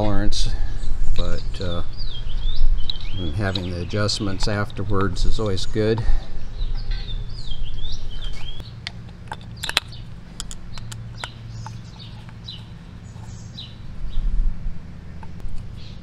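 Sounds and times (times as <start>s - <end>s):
birds chirping: 0.0s - 16.0s
low steady hum: 0.0s - 16.0s
small metallic clicks: 8.5s - 12.7s.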